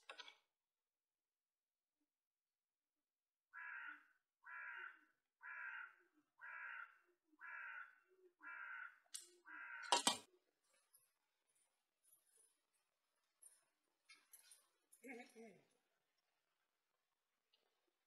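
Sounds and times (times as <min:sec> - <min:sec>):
crow cawing: 0:03.6 - 0:10.3.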